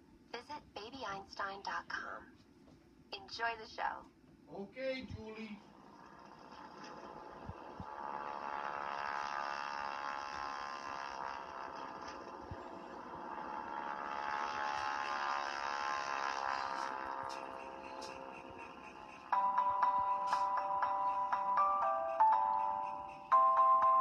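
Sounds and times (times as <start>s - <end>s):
television buzzing drone: 5.3s - 24.0s.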